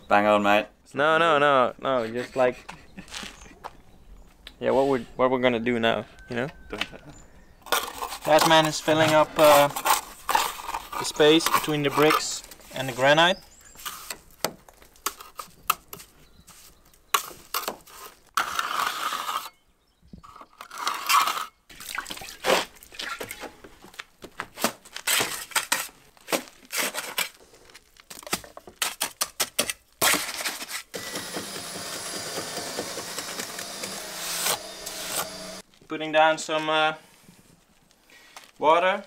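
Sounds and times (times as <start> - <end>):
scooping mortar from plastic bucket: 7.6 - 19.5, 20.6 - 30.9
float scraping mortar: 7.6 - 19.6, 25.0 - 29.2.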